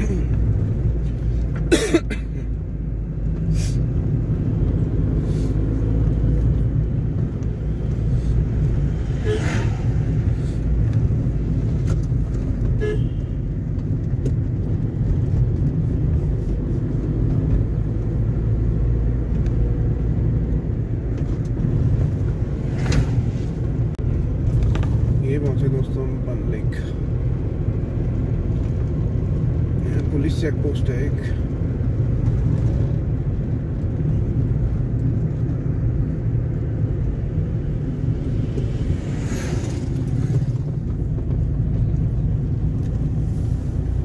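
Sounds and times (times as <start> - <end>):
car engine and tyre rumble: 0.0 - 44.0
car horn toot: 9.2 - 9.7, 12.8 - 13.4.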